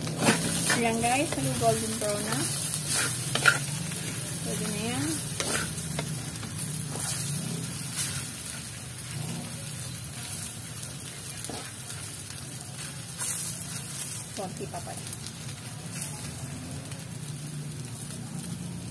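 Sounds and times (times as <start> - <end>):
food sizzling in a wok: 0.0 - 18.9
wooden spatula scraping pan: 0.1 - 8.6.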